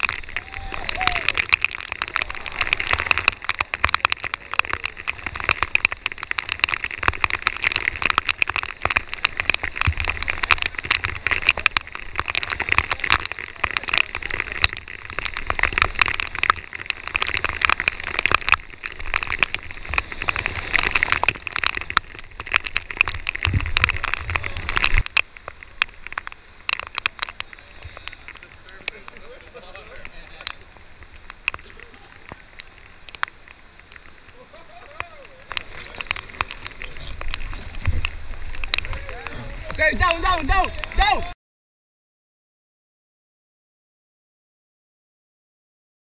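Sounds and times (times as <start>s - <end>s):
rapids rushing around raft: 0.0s - 41.4s.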